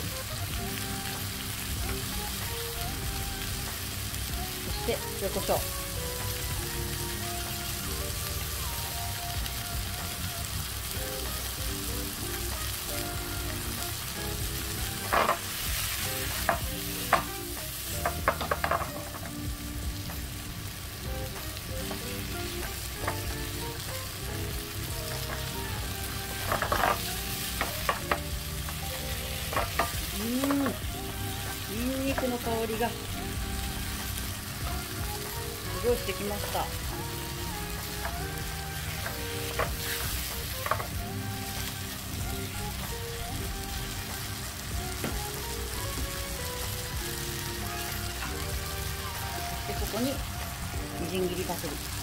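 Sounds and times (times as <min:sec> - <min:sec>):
food sizzling in frying pan: 0:00.0 - 0:52.0
tongs clacking against pan: 0:15.0 - 0:15.5, 0:26.4 - 0:28.8, 0:29.4 - 0:30.8.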